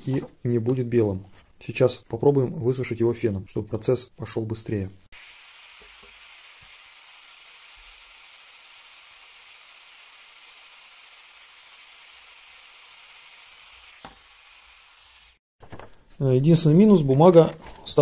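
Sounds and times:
heat gun blowing air: 5.2 - 15.4.

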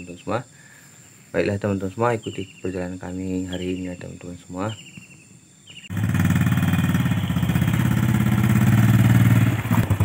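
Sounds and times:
small motorcycle engine idling: 5.7 - 10.0.

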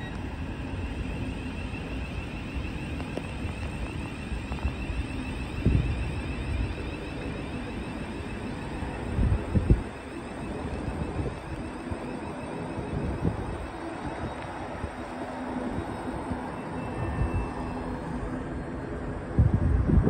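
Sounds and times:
electric traction whine: 0.0 - 19.4
electric train running: 0.0 - 20.0
wind thumps on microphone: 19.4 - 20.0.

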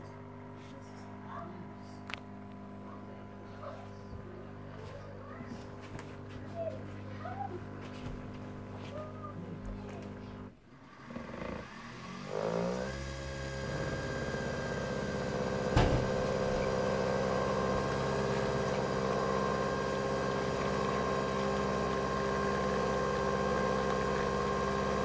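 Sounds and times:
coffee machine motor whirring: 5.2 - 25.0.

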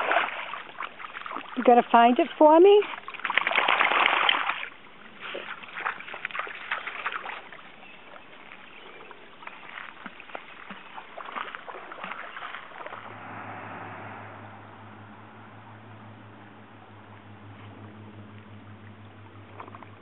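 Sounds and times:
water splashing and sloshing: 0.0 - 20.0
steady low hum: 12.9 - 20.0.

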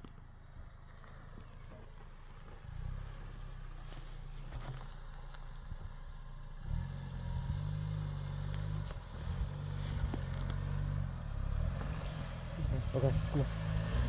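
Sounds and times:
car engine at low revs: 0.0 - 14.0
tyres crackling on dirt and stones: 1.3 - 6.2, 8.2 - 14.0.

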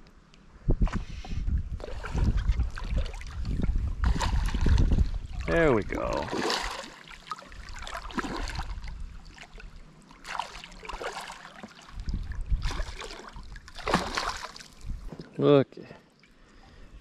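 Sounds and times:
fish splashing in water: 1.8 - 14.9.

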